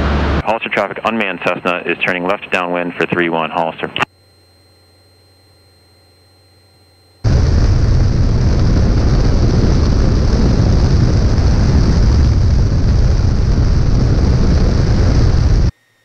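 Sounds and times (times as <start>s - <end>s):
wind buffeting microphone: 7.3s - 15.7s.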